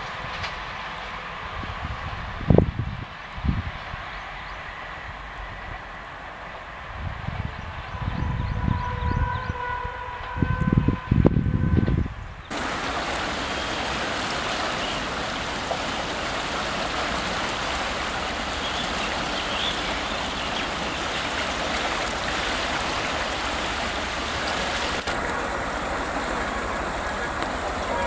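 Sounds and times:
river water rushing: 12.5s - 28.0s.

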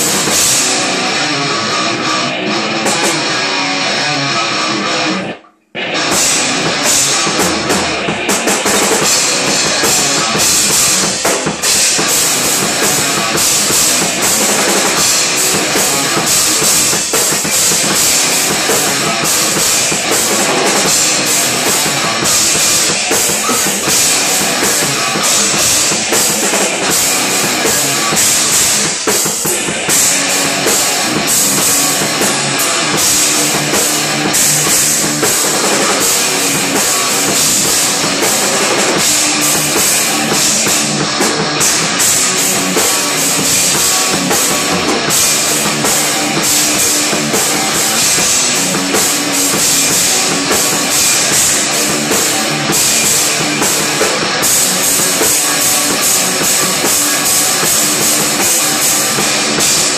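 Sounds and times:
drum kit: 0.0s - 59.9s
electric guitars: 0.0s - 59.9s.

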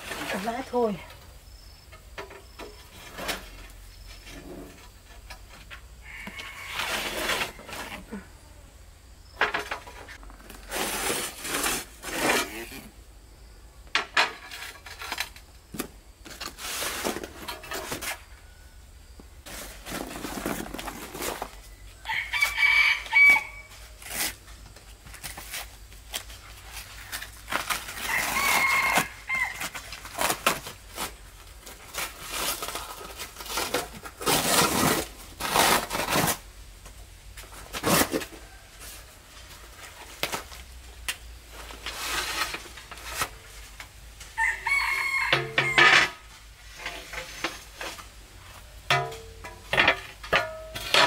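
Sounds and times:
rooster crowing: 6.0s - 8.0s, 22.0s - 23.8s, 28.0s - 29.8s, 44.4s - 46.2s
cardboard rustling and tearing: 10.4s - 12.8s, 19.5s - 21.8s, 22.4s - 36.5s, 37.4s - 39.0s
floor tiles being handled: 13.9s - 18.3s, 24.0s - 44.0s.

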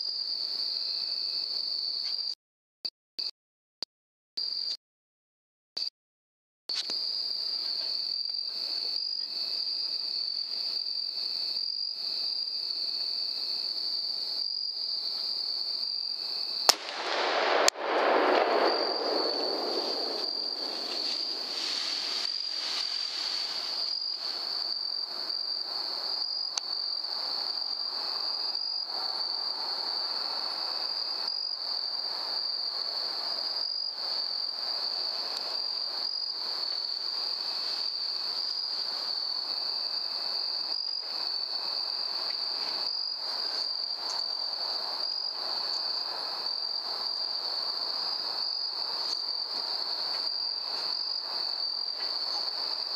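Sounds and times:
insects trilling: 6.8s - 52.9s
rifle shot: 16.7s - 22.3s
hog crashing through brush: 16.7s - 23.9s.

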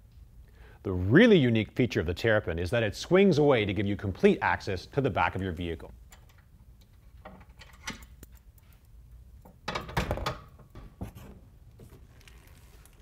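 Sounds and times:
metal clicks and rattles: 6.1s - 8.6s.

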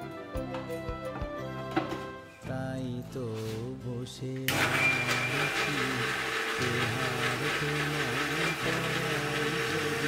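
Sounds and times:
electric blender running: 4.5s - 10.0s.

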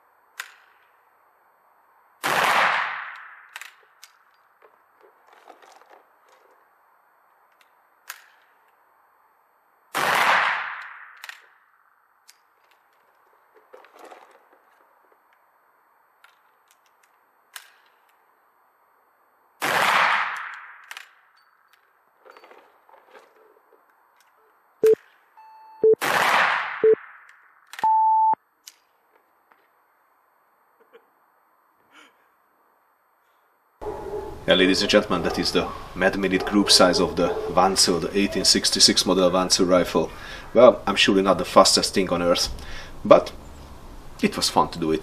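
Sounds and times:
rifle shots with echo: 2.2s - 3.6s, 9.9s - 11.2s, 19.6s - 20.8s, 26.0s - 27.1s
timer beeps: 24.8s - 26.0s, 27.8s - 28.4s.

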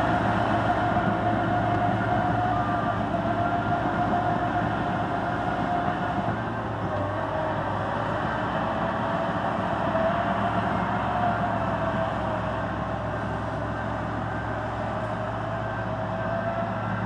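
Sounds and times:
bulldozer engine under load: 0.0s - 17.0s.

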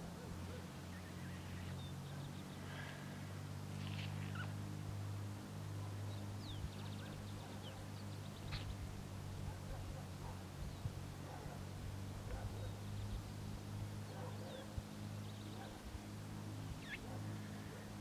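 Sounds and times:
steady low hum: 0.0s - 18.0s
small bird chirps and trill: 3.8s - 4.6s, 6.1s - 8.8s, 16.8s - 17.4s.

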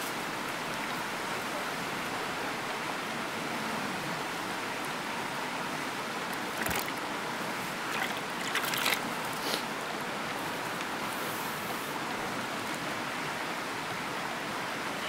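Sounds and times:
water rushing: 0.0s - 15.0s
brief splashes or knocks: 6.5s - 7.0s.

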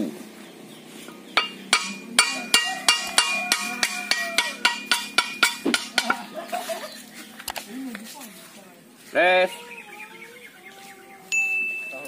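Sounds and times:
hammer striking ringing metal: 1.4s - 6.3s.

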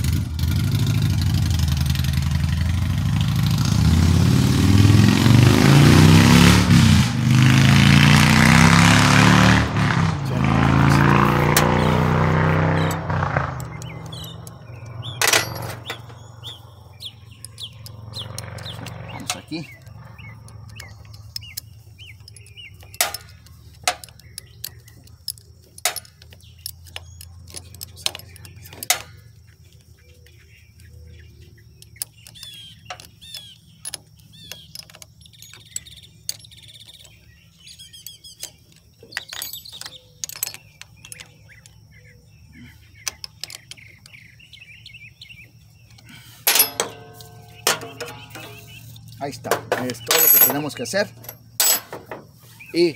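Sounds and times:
birds chirping: 0.0s - 52.9s
metal tools clattering: 10.2s - 29.9s, 31.7s - 42.0s, 42.9s - 44.3s, 45.6s - 52.9s
wrench clinking on metal bolt: 10.8s - 29.8s, 31.7s - 42.0s, 43.0s - 44.4s, 45.8s - 52.4s.

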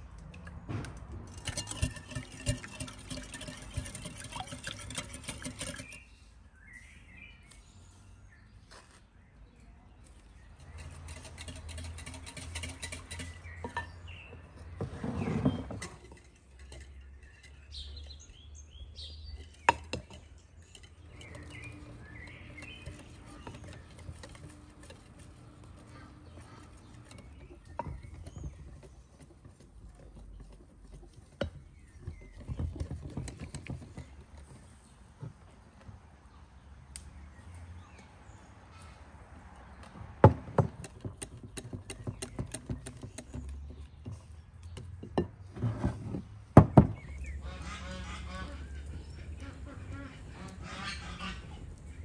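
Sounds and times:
whisk clinking against glass: 1.3s - 6.0s
whisk stirring batter in bowl: 1.3s - 6.1s, 10.6s - 13.6s, 20.6s - 29.0s
small birds chirping: 2.2s - 40.0s, 40.8s - 45.5s, 46.6s - 52.0s.

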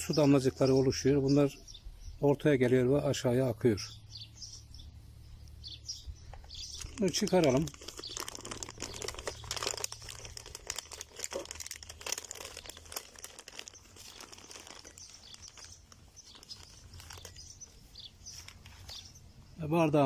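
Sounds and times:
plastic film crinkling: 6.4s - 19.1s.

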